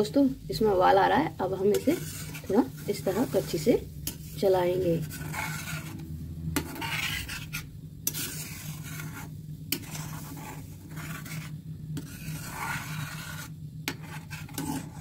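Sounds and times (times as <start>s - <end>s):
steady low hum: 0.0s - 15.0s
metal spoon scraping a pan: 0.6s - 15.0s.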